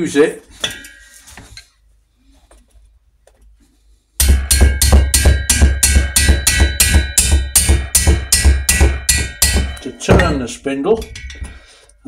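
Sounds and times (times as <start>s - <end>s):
mallet striking steel tool: 4.2s - 11.6s.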